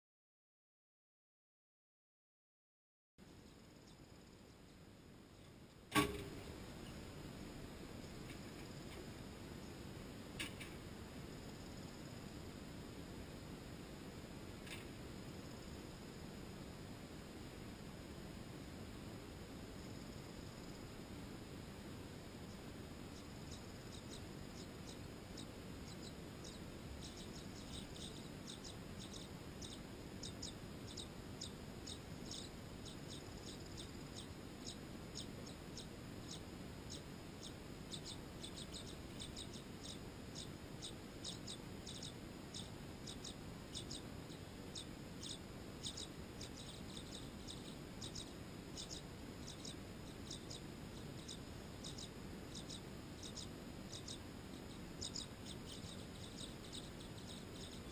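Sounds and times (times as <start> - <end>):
faint low hum: 3.2 - 57.9
swallows chirping: 23.1 - 57.9.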